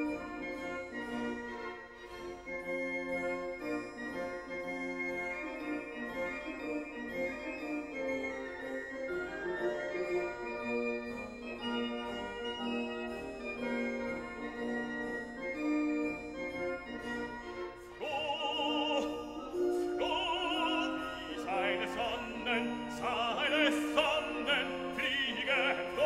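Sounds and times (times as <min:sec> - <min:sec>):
operatic singing voice: 0:18.0 - 0:26.0.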